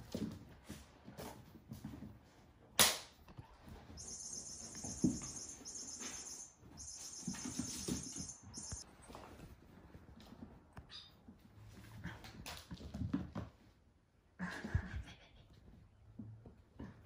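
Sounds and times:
small paws thumping and scuffling: 0.0 - 14.0
sharp snap: 2.8 - 3.2.

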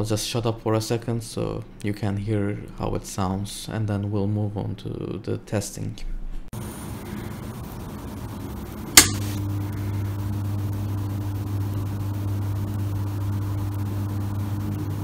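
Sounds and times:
transformer hum: 6.6 - 15.0.

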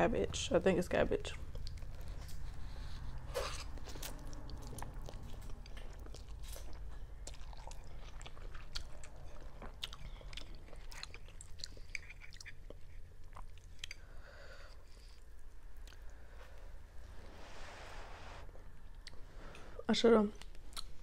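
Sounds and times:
wet chewing and mouth clicks: 1.3 - 16.2, 18.5 - 19.6, 20.4 - 21.0.

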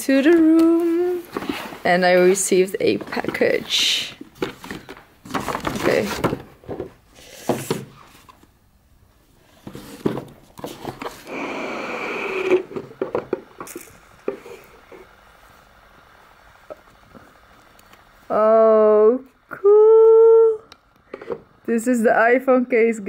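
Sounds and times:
cardboard rustling and tapping: 0.4 - 8.5.

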